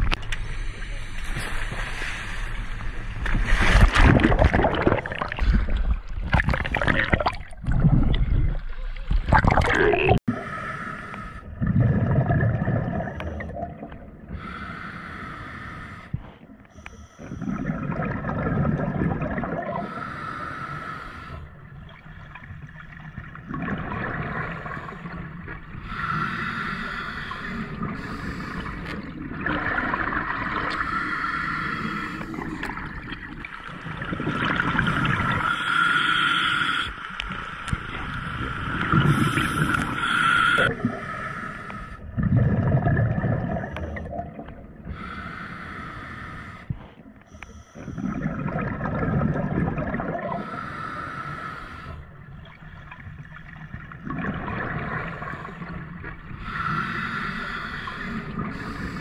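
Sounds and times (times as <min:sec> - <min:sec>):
water splashing and churning: 0:00.0 - 0:16.5, 0:17.2 - 0:47.2, 0:47.8 - 0:59.0
bubbling and gurgling water: 0:00.0 - 0:59.0
diver breathing underwater: 0:10.2 - 0:13.7, 0:14.3 - 0:18.1, 0:19.5 - 0:21.6, 0:24.1 - 0:29.2, 0:29.8 - 0:44.2, 0:44.8 - 0:49.0, 0:49.8 - 0:52.4, 0:54.2 - 0:59.0.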